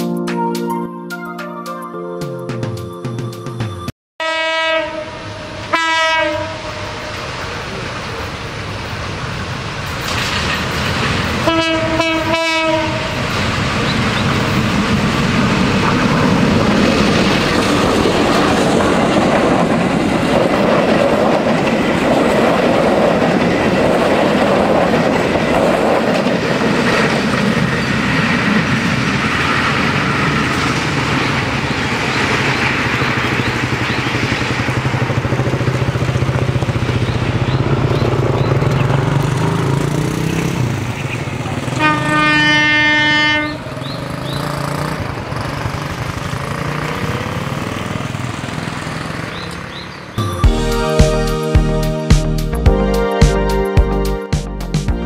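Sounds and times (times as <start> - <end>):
train rumbling past: 3.2 - 52.6
train horn blasts: 4.2 - 7.4, 11.4 - 13.2, 41.7 - 43.7
wheels clattering on rails: 7.1 - 42.9, 43.6 - 50.2.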